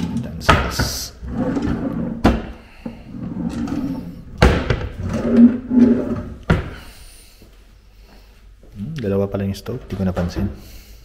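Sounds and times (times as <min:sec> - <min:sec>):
drawers sliding on runners: 0:01.2 - 0:06.7
drawer closing knock: 0:04.4 - 0:05.2.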